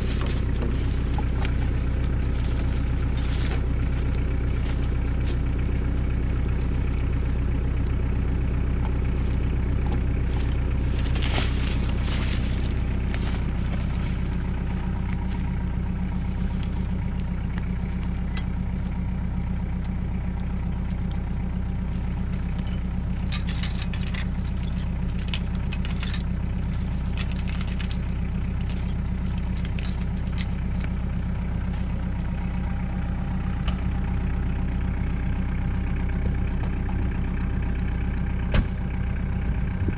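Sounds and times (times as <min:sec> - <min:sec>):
chain clinking and rattling: 0:00.0 - 0:07.6, 0:10.3 - 0:17.0, 0:17.7 - 0:18.8, 0:21.7 - 0:33.3
tractor diesel engine idling: 0:00.0 - 0:39.9.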